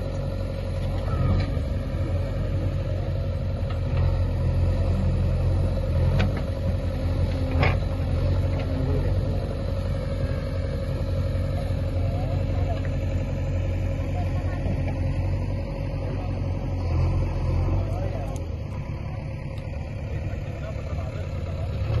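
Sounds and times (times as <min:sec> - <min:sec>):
backhoe digging soil: 0:00.0 - 0:10.4
diesel engine running: 0:00.0 - 0:22.0.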